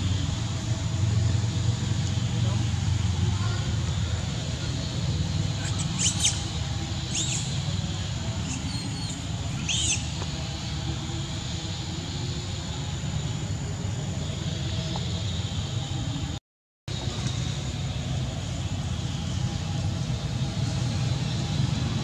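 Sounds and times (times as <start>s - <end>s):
monkeys squeaking: 5.5s - 7.8s, 8.4s - 10.2s.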